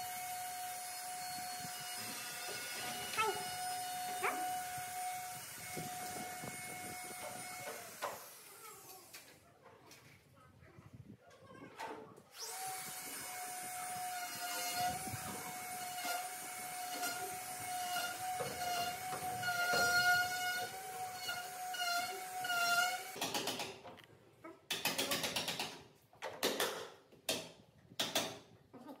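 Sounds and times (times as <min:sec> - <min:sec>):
door rollers whining on track: 0:01.9 - 0:08.3.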